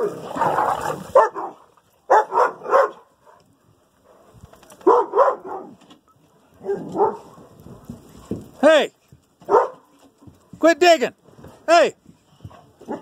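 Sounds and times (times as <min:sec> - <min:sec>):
dogs barking: 0:00.0 - 0:03.2, 0:04.8 - 0:05.8, 0:06.6 - 0:07.6, 0:09.4 - 0:09.9, 0:12.8 - 0:13.0.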